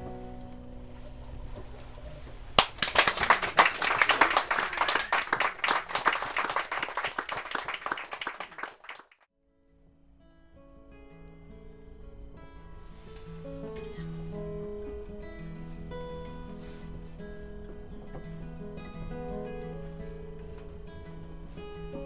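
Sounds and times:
audience applause: 2.6s - 9.3s.

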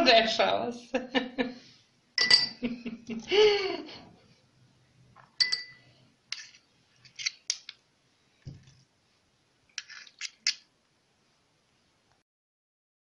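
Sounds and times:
metal spoon scraping: 5.4s - 7.8s, 9.8s - 10.7s
soft thud: 8.5s - 8.7s.

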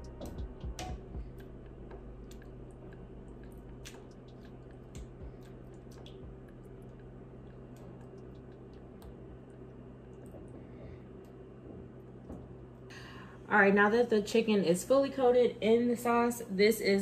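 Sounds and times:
low hum: 0.0s - 16.2s
sauce squelching: 1.2s - 9.7s.

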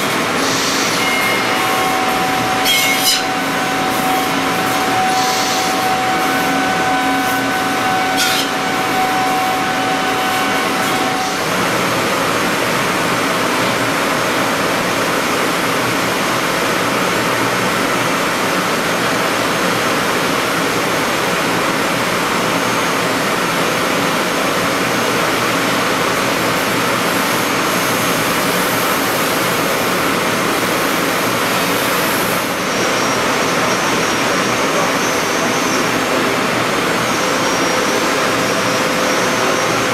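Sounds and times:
faint high whine: 0.4s - 11.5s.

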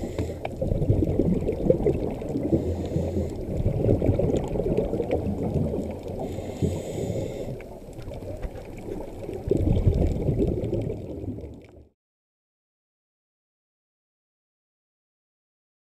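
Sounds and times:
muffled underwater rumble: 0.0s - 11.9s
underwater regulator bubbles: 0.0s - 11.9s.

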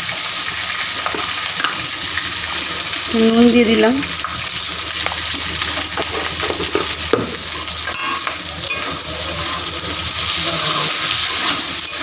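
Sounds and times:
vegetables sizzling in hot oil: 0.0s - 12.0s
metal spatula scraping pan: 7.5s - 12.0s.

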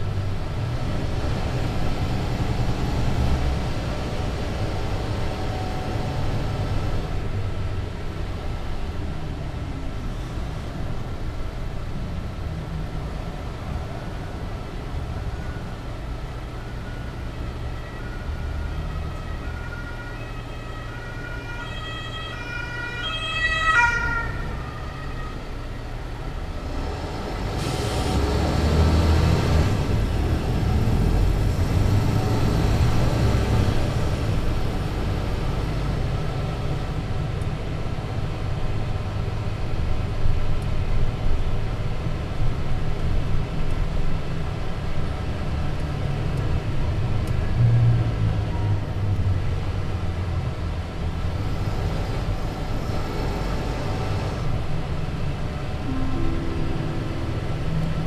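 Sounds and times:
bus engine running: 0.0s - 23.0s, 24.1s - 58.0s
two-tone siren passing: 4.6s - 7.0s, 16.5s - 26.2s, 55.5s - 58.0s.

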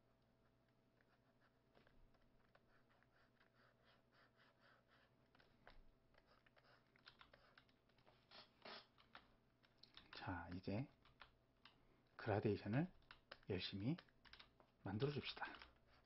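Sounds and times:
stylus scratching strokes: 6.2s - 9.2s.

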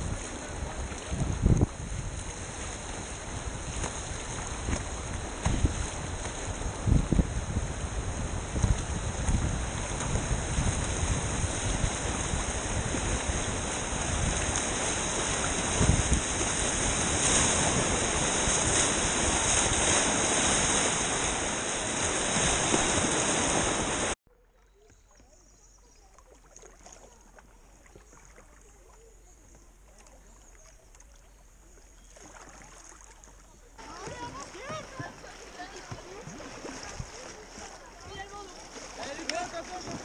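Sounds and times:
calm river water: 0.0s - 40.0s
whitewater rapids rushing: 9.6s - 24.2s, 33.8s - 40.0s.

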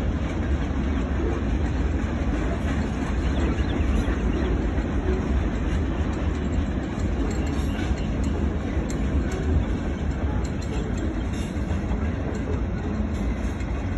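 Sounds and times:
train wheels rumbling on rails: 0.0s - 13.9s.

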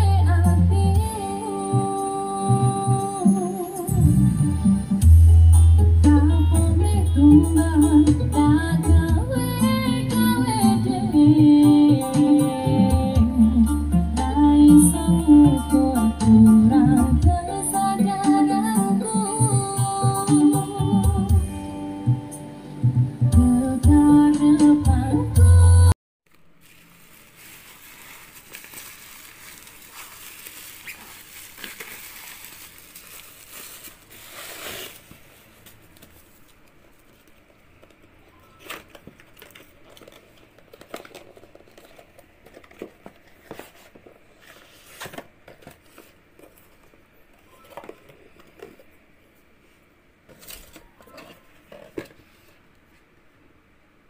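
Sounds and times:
plastic wrapping crinkling: 26.3s - 47.0s.

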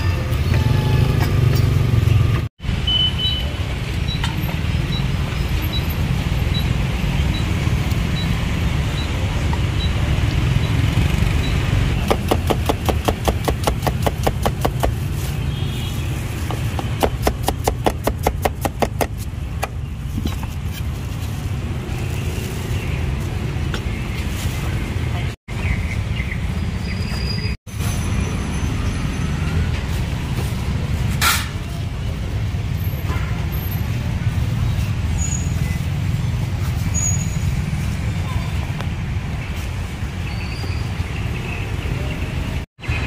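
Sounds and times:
street traffic rumble: 0.0s - 43.0s
cleaver chopping on wooden block: 12.0s - 15.0s, 16.8s - 19.8s.

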